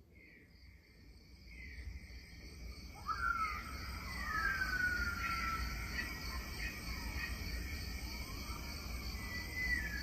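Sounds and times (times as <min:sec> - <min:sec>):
high insect-like hum: 0:00.5 - 0:10.0.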